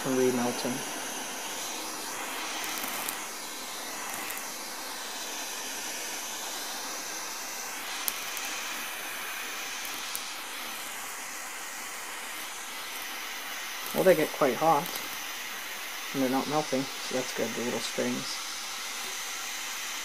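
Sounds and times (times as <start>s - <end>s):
blowtorch flame hissing: 0.0s - 20.0s.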